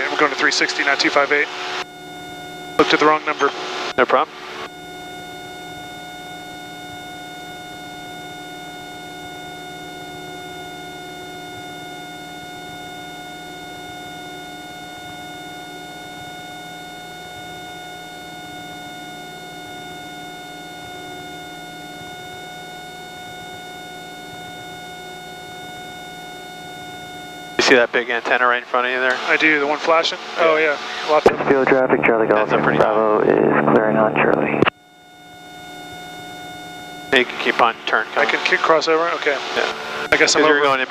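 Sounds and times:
aircraft engine drone: 0.0s - 6.0s, 26.9s - 34.7s, 35.3s - 40.9s
high-pitched whine: 0.0s - 40.9s.

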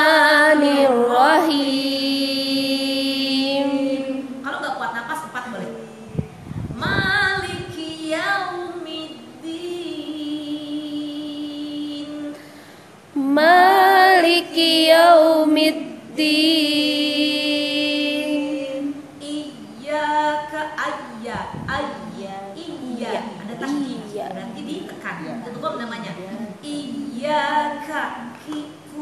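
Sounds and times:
woman chanting melodically: 0.0s - 12.4s, 13.2s - 29.0s.

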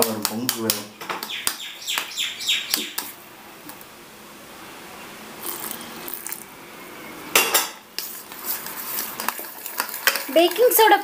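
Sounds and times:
spoon scraping batter: 8.0s - 11.0s.

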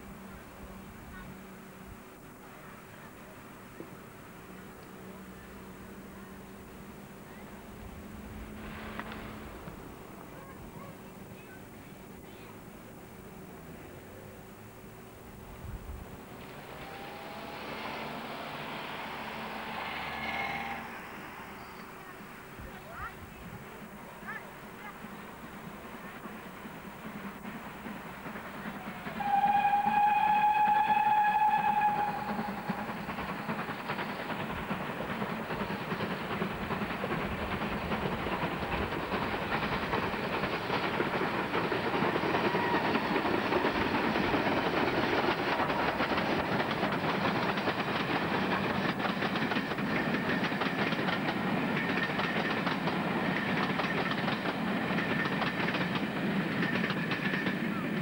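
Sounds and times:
steam locomotive whistle: 16.7s - 21.8s, 28.7s - 33.6s, 42.3s - 43.8s
train wheels clattering: 25.5s - 58.0s.

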